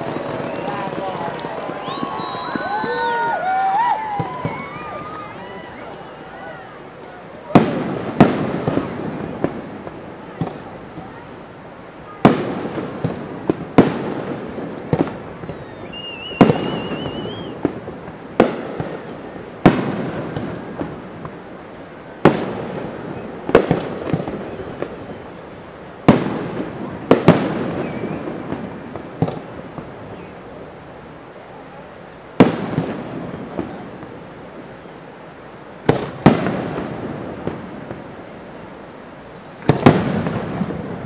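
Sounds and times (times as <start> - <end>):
firework shells bursting: 12.3 - 21.4.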